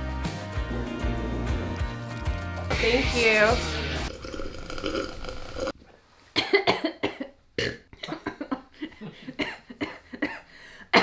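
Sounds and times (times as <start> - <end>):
woman coughing: 6.4 - 8.6, 9.4 - 11.0.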